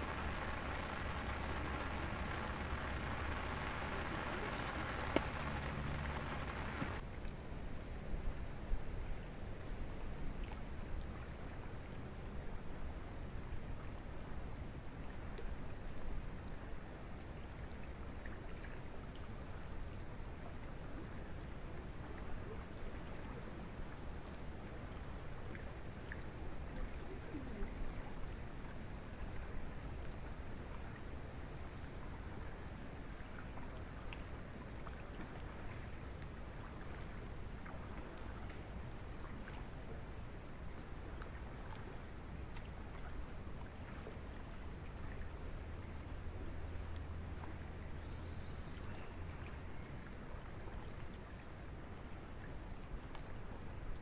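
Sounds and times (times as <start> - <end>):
steady rain falling: 0.0 - 7.0.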